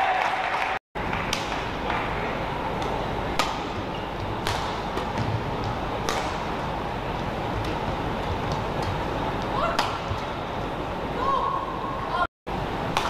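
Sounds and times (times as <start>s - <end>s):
indoor arena hum: 0.0s - 13.0s
badminton racket hitting shuttlecock: 2.8s - 6.8s.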